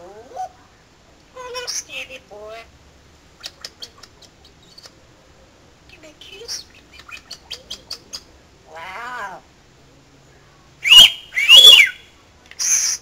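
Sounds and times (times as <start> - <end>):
parrot calling: 6.5 - 9.4, 10.8 - 13.0
parrot screeching: 10.9 - 12.0
parrot hissing: 12.6 - 13.0.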